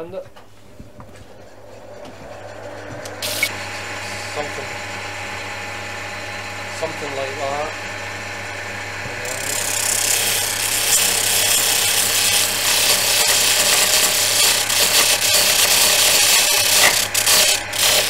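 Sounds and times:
disc sander humming: 0.4 - 18.0
wood sanding hiss: 1.6 - 4.9, 9.2 - 18.0.

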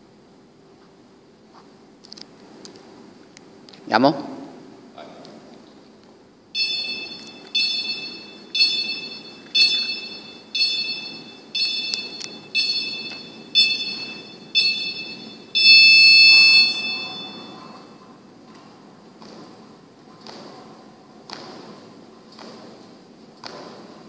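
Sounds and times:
short electronic beeps: 6.6 - 17.9
long loud beep: 6.6 - 18.0.

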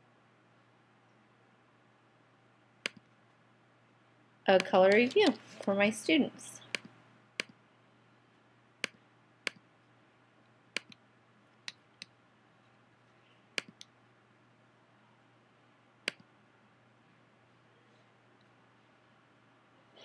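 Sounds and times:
faint low hum: 0.0 - 20.0
computer mouse clicking: 2.8 - 3.1, 4.6 - 5.4, 6.7 - 7.6, 8.8 - 9.6, 10.8 - 11.0, 13.6 - 13.9, 16.1 - 16.3.

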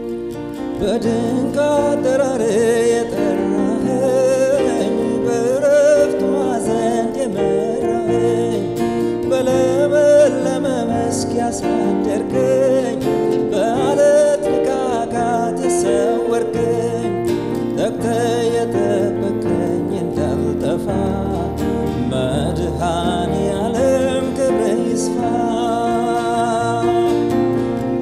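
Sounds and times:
acoustic guitar strumming: 0.0 - 28.0
electronic keyboard chords: 0.0 - 28.0.

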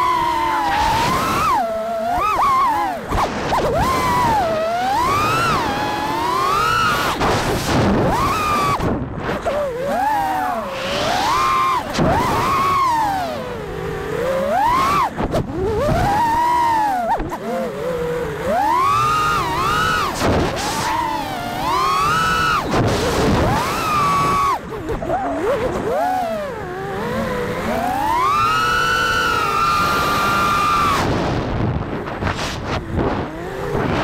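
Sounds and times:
drone motors whining: 0.0 - 34.0.

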